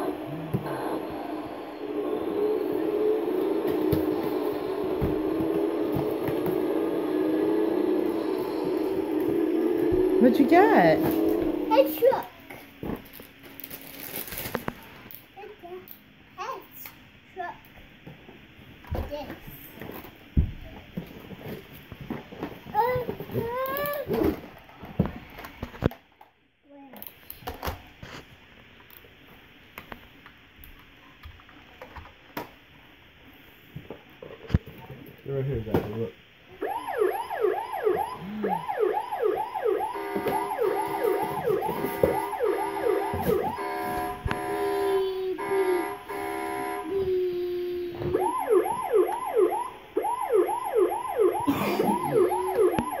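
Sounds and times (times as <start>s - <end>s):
toy electronic siren: 0.0s - 12.0s, 36.6s - 47.0s, 47.9s - 53.0s.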